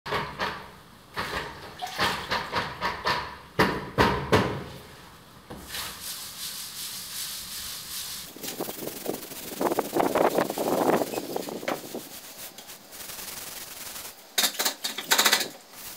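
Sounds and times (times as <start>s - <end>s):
sharp knocks and clatters: 0.1s - 4.7s, 13.6s - 15.7s
scrubbing brush on plaster wall: 4.8s - 15.9s.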